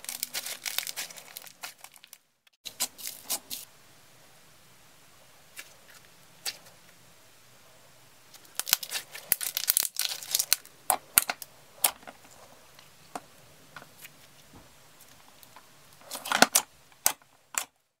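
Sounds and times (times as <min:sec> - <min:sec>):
slime crackling and popping: 0:00.0 - 0:02.2, 0:08.4 - 0:12.0.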